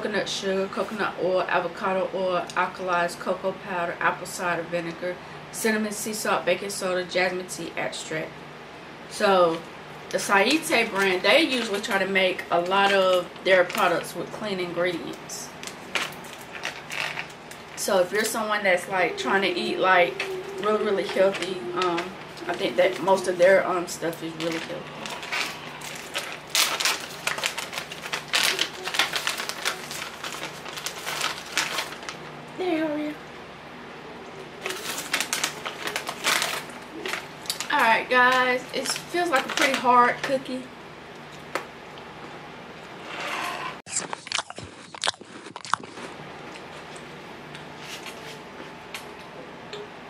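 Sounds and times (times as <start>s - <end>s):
plastic snack bag crinkling: 14.9s - 32.2s, 34.6s - 40.4s
crunchy cookie being chewed: 43.9s - 48.2s.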